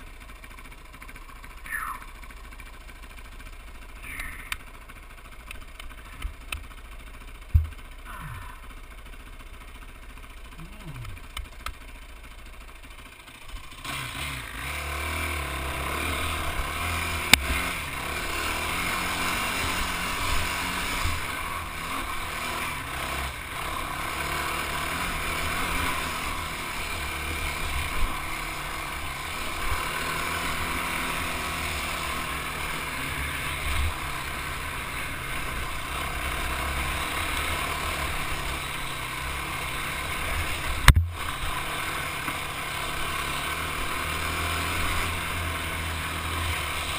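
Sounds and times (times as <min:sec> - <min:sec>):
off-road vehicle engine: 0:00.0 - 0:46.9
vehicle knocks on rough trail: 0:07.4 - 0:08.0, 0:40.8 - 0:41.3
sharp thump: 0:07.5 - 0:07.8, 0:40.8 - 0:41.2.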